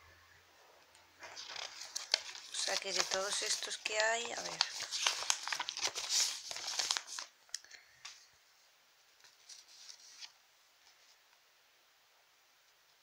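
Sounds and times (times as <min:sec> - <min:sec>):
paper crinkling and rustling: 0:01.2 - 0:08.2, 0:09.2 - 0:11.2.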